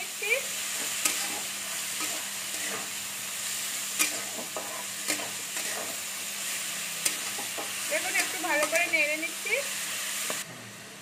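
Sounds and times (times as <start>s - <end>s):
cabbage sizzling in hot oil: 0.0s - 10.9s
metal spatula scraping a pan: 0.6s - 3.0s, 3.8s - 6.2s, 7.0s - 9.0s.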